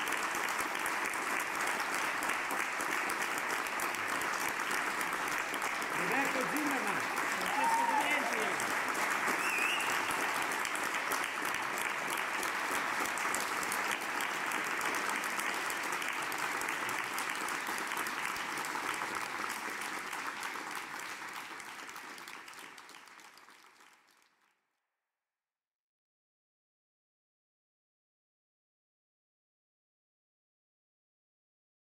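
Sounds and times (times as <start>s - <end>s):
audience applauding: 0.0s - 24.6s.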